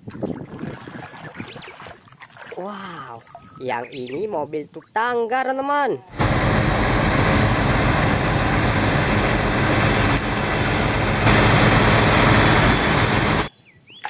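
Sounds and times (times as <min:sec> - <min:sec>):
diesel truck engine rumbling: 0:06.1 - 0:13.5.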